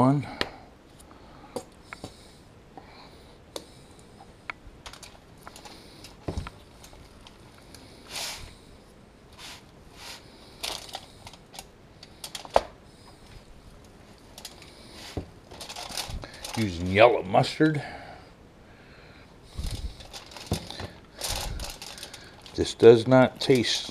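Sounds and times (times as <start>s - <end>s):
gloved hands rustling: 9.3s - 17.0s, 19.5s - 23.9s.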